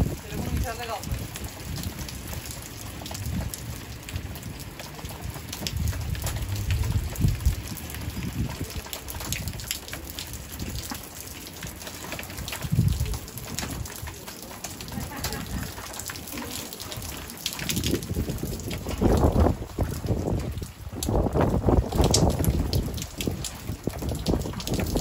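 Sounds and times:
low rumbles: 0:00.0 - 0:09.7
rain falling: 0:00.0 - 0:25.0.

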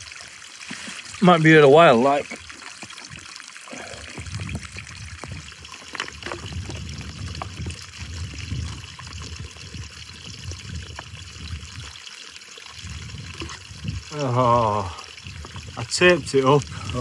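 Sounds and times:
water trickling: 0:00.0 - 0:17.0
wind buffeting microphone: 0:03.9 - 0:12.0, 0:12.8 - 0:17.0.

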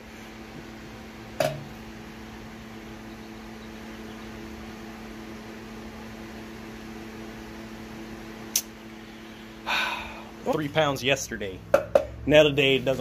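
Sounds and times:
steady mechanical hum: 0:00.0 - 0:13.0
metal pipe knocking on scale: 0:11.7 - 0:12.1.

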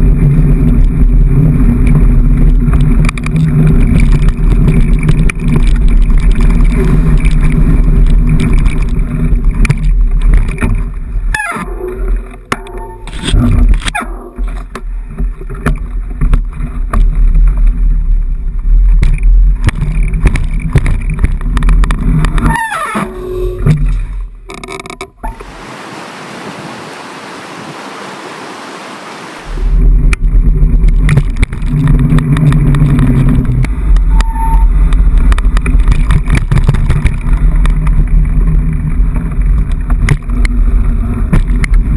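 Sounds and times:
wind and vibration rumble: 0:00.0 - 0:41.9
short squeals: 0:22.4 - 0:24.1, 0:34.1 - 0:34.8.

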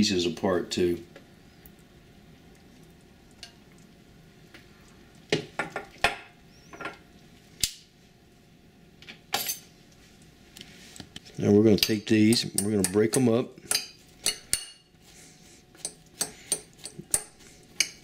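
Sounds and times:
faint steady hiss: 0:00.0 - 0:18.0
metal tongs clacking on pot: 0:11.8 - 0:14.8, 0:15.8 - 0:18.0.

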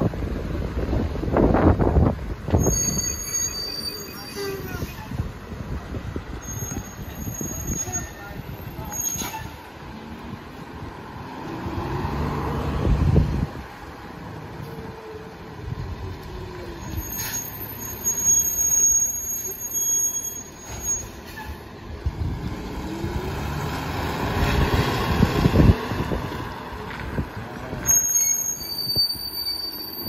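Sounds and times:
high-pitched squeal: 0:02.5 - 0:05.2, 0:06.4 - 0:09.6, 0:16.6 - 0:21.6, 0:27.8 - 0:30.0.

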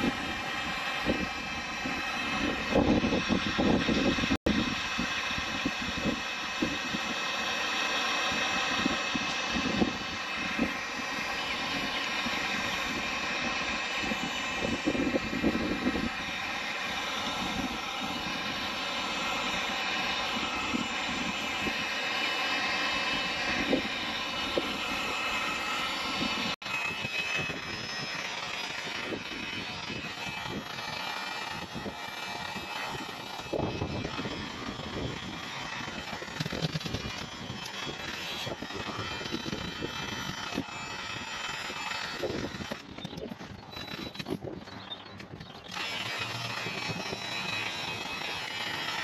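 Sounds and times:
wind buffeting microphone: 0:00.0 - 0:07.2, 0:08.3 - 0:18.8, 0:31.5 - 0:48.3
heat gun fan whirring: 0:00.0 - 0:49.0.

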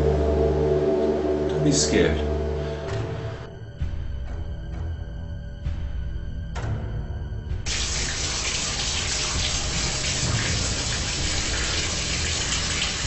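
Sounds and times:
water running into bathtub: 0:07.7 - 0:13.0.

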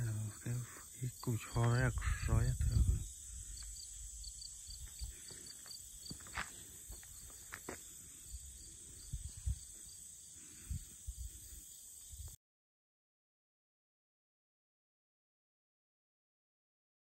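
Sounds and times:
crickets chirping: 0:00.0 - 0:12.4.

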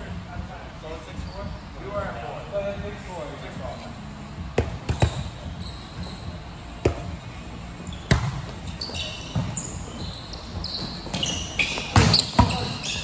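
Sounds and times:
short high squeaks: 0:08.7 - 0:13.0.

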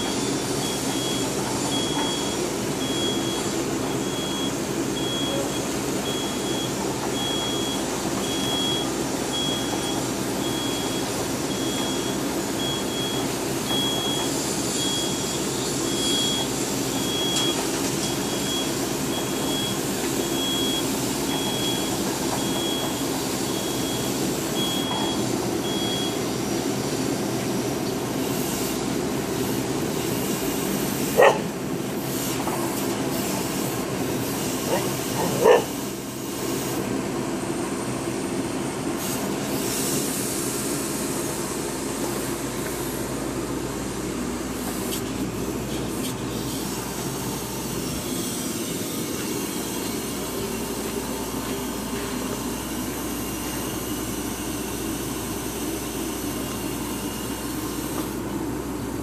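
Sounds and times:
drilling rig running: 0:38.9 - 0:59.0.

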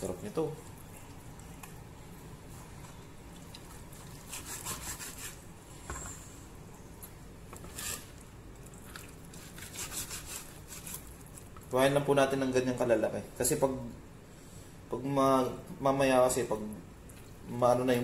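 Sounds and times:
knife sawing through fat: 0:04.3 - 0:05.4, 0:09.6 - 0:11.0.

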